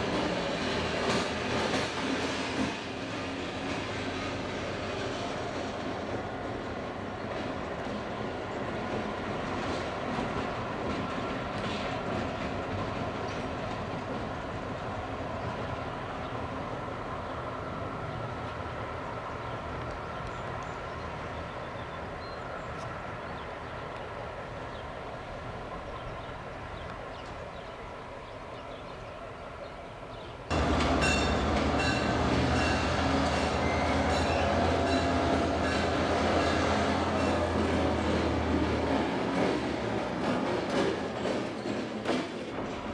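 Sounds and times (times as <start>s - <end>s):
train wheels clicking over rail joints: 0.0s - 14.8s, 30.5s - 42.9s
diesel locomotive engines running: 0.0s - 42.9s
high wheel squeals: 30.5s - 37.5s
pulsing locomotive engine rumble: 30.5s - 42.9s.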